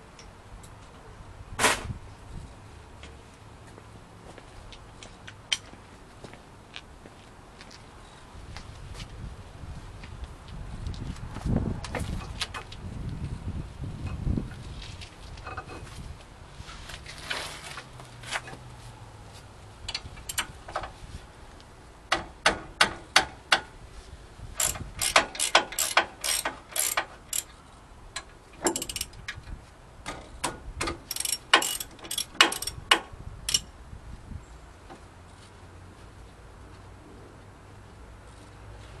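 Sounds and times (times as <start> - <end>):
ratchet wrench clicking: 19.9 - 20.5, 24.6 - 27.5, 28.6 - 29.2, 31.0 - 33.7.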